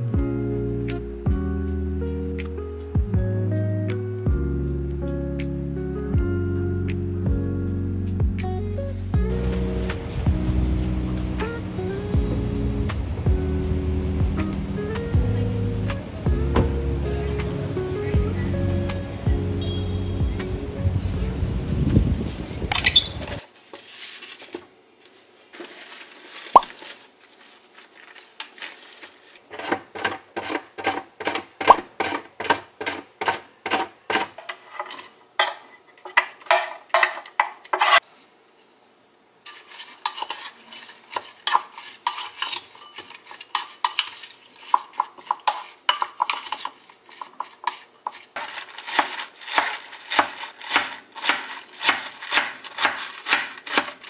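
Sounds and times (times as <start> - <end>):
utensils clinking against dishes: 39.5 - 54.0.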